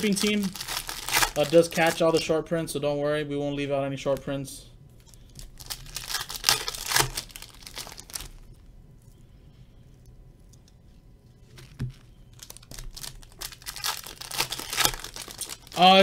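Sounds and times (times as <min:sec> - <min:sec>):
foil wrapper crinkling and tearing: 0:00.0 - 0:02.3, 0:05.0 - 0:08.5, 0:11.5 - 0:16.0.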